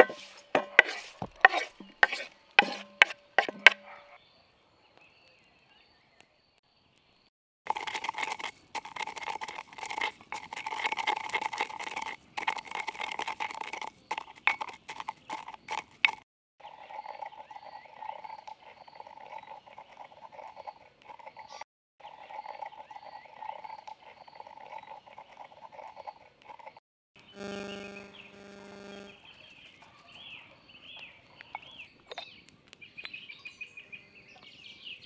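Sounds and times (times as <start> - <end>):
pestle grinding seeds in a mortar: 0.0 - 4.2, 7.7 - 26.8
chorus of animal calls: 16.6 - 25.4.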